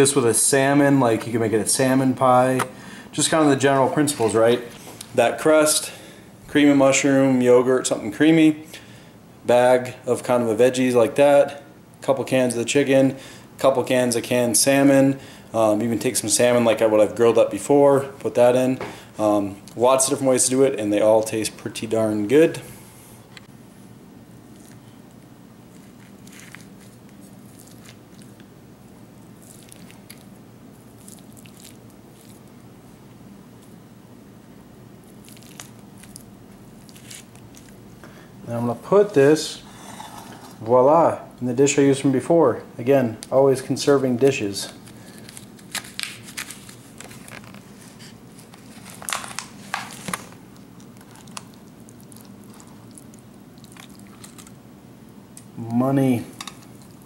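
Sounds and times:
low steady hum: 0.0s - 57.0s
foil crinkling: 36.8s - 37.8s, 44.8s - 51.5s.

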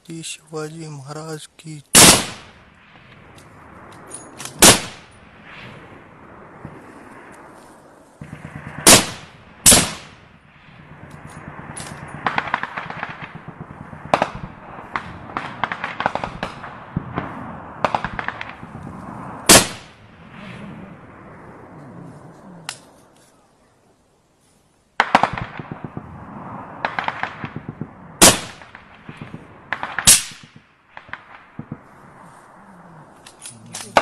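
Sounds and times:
automatic gunfire: 2.0s - 2.6s, 4.5s - 5.1s, 8.2s - 10.2s, 11.5s - 18.6s, 19.5s - 19.9s, 26.8s - 31.8s
loud gunshots: 2.0s - 2.6s, 4.5s - 5.6s, 8.2s - 10.2s, 11.5s - 18.7s, 19.4s - 20.6s, 25.0s - 26.2s, 26.8s - 31.9s.

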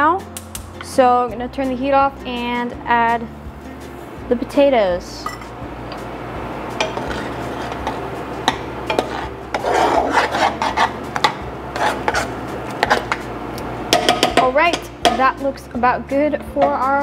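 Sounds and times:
utensil stirring thick mash: 6.8s - 13.2s
utensil knocking against pot: 13.9s - 15.3s.

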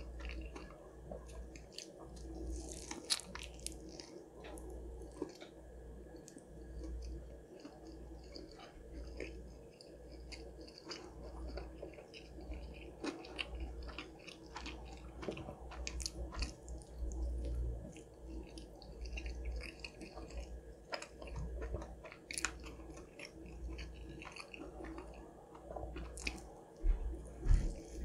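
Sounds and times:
crispy food chewing: 0.0s - 28.0s.

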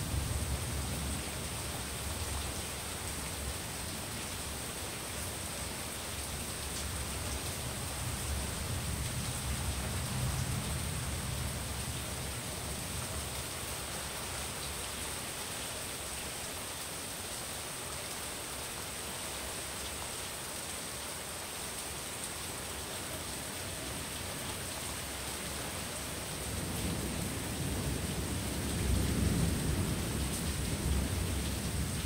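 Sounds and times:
steady rain falling: 0.0s - 32.0s
low rumble of thunder: 26.6s - 32.0s.

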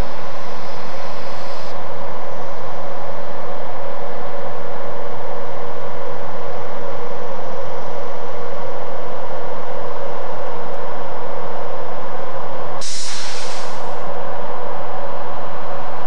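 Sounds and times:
compressed air hiss: 12.8s - 14.0s.

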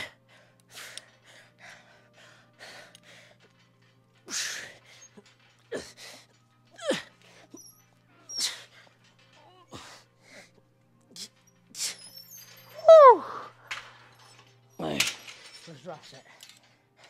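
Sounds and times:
man breathing hard: 0.0s - 3.7s, 4.3s - 6.4s, 9.7s - 10.6s.

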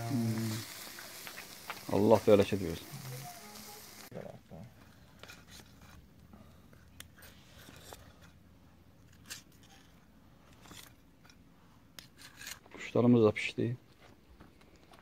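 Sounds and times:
meat sizzling over charcoal: 0.0s - 4.1s.

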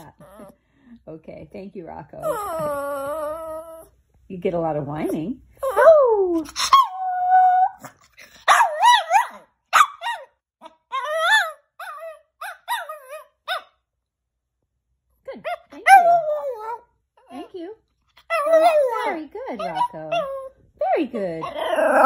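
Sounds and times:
small dog whining and yowling: 0.0s - 0.6s, 2.2s - 4.0s, 5.6s - 13.7s, 15.5s - 17.4s, 18.2s - 20.6s.

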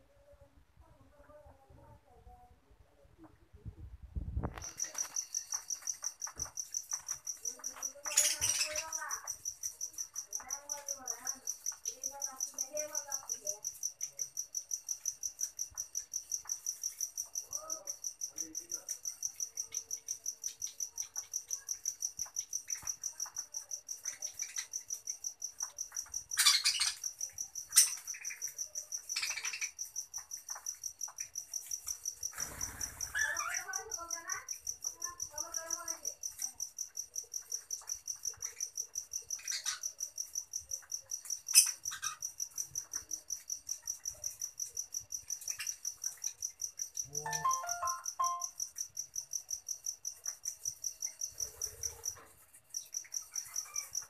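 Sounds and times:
high-pitched pulsing chirp: 47.0s - 48.6s.

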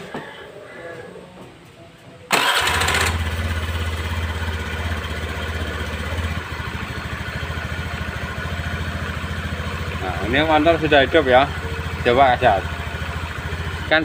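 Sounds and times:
scooter engine starting and idling: 2.3s - 14.0s.

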